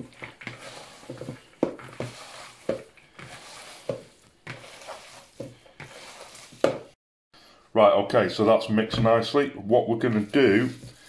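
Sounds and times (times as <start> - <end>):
hands kneading wet mince: 0.0 - 7.0, 10.0 - 11.0.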